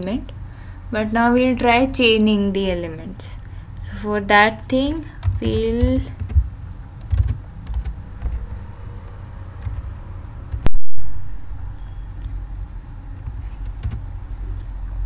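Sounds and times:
low steady rumble: 0.0 - 15.0
keyboard keys clicking: 5.2 - 8.4, 13.2 - 14.0.

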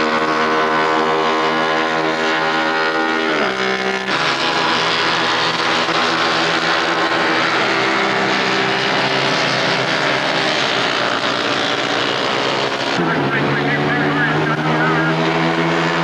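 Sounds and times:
racing motorcycle engine high revs: 0.0 - 16.0.

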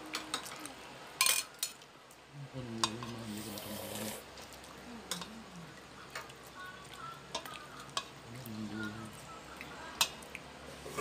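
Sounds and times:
person humming: 0.0 - 0.9, 8.3 - 9.2.

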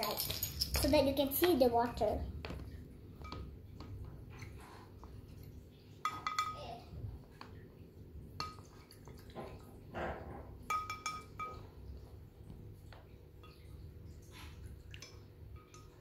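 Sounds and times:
stick clinking against glass bowl: 6.0 - 6.6, 10.7 - 11.7, 15.0 - 16.0.

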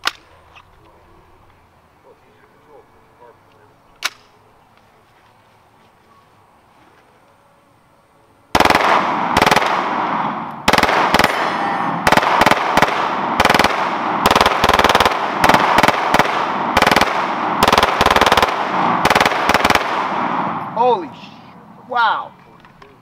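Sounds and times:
pistol firing rapid bursts: 8.6 - 11.4, 12.0 - 20.5.

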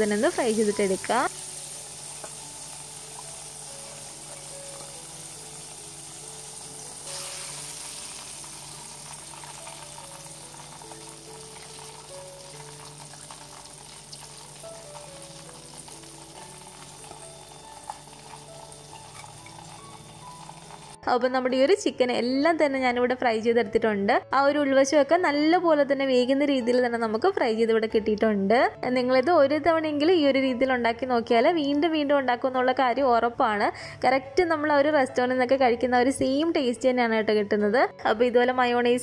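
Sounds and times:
chicken deep-frying in oil: 0.0 - 21.0
soft background melody: 0.0 - 39.0.

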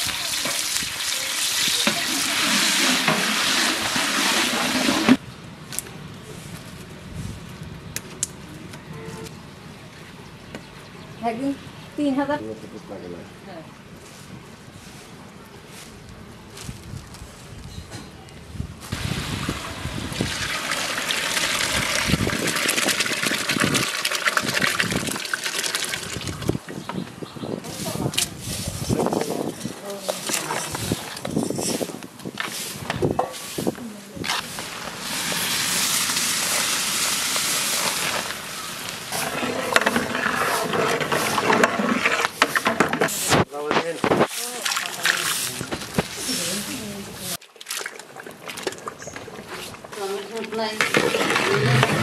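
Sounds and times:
meat sizzling in hot oil: 0.0 - 4.3, 34.7 - 39.1
water and lentils pouring into pot: 0.0 - 5.2, 19.0 - 26.5, 34.8 - 40.2
ladle stirring: 39.2 - 43.2.

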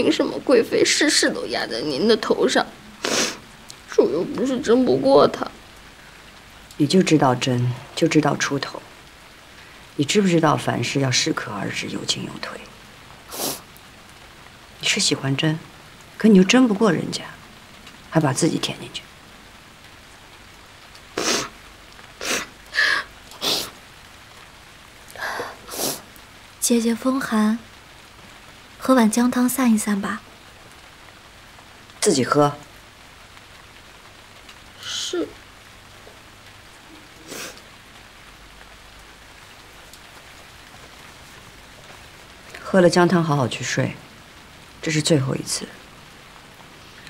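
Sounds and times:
steady rain falling: 0.0 - 47.0
woman sniffling: 3.0 - 3.4, 22.2 - 23.7.

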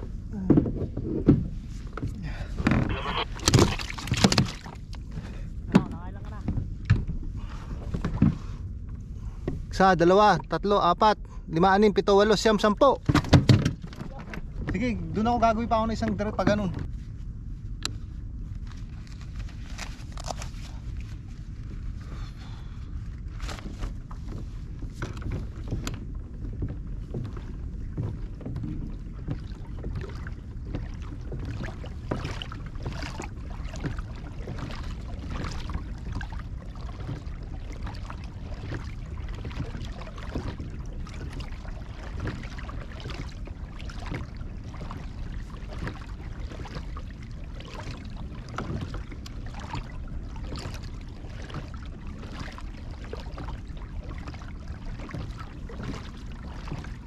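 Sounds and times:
water lapping against kayak hull: 0.0 - 57.0
wind rumble on microphone: 0.0 - 57.0.

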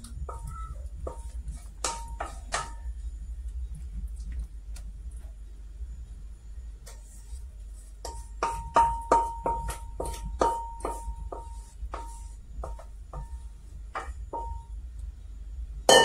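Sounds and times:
spoon knocking metal bowl: 8.1 - 13.4.

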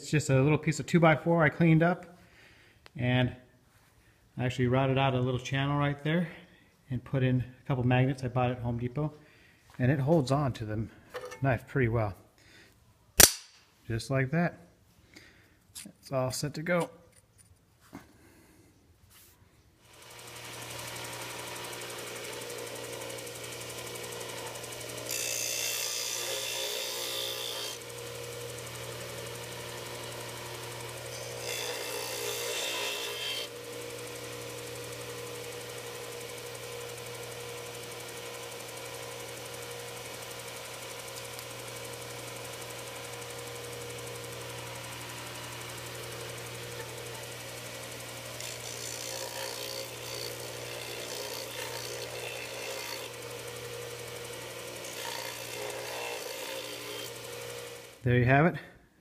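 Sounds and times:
sander motor hum: 19.9 - 58.1
steel blade grinding on sanding disc: 20.0 - 58.0.

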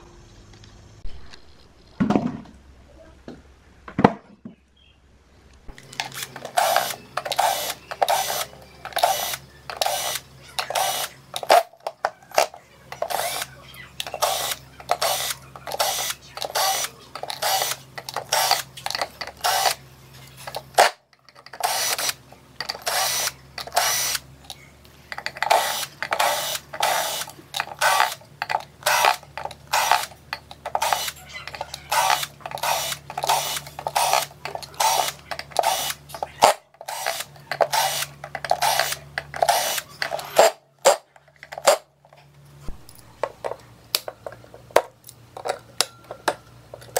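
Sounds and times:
low steady hum: 0.0 - 46.9
cordless drill driving screws: 5.8 - 11.7, 12.4 - 19.8, 20.4 - 24.2, 25.2 - 41.0.

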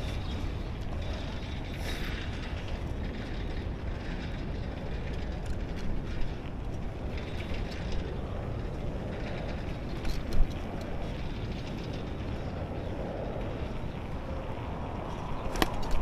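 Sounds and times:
rattles and clacks: 0.0 - 14.0
tyre and road noise: 0.0 - 16.0
wind rumbling on microphone: 0.0 - 16.0.

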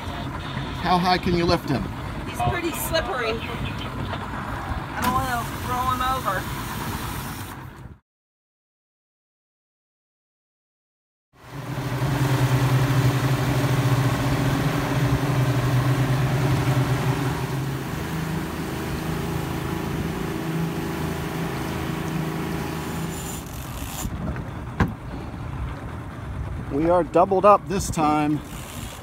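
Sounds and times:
water rushing from wake: 0.0 - 7.8, 11.4 - 24.2
outboard motors droning: 0.0 - 8.0, 11.4 - 29.0.

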